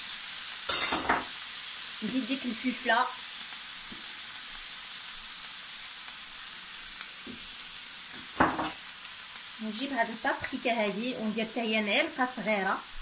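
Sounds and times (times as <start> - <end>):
vegetables sizzling in frying pan: 0.0 - 13.0.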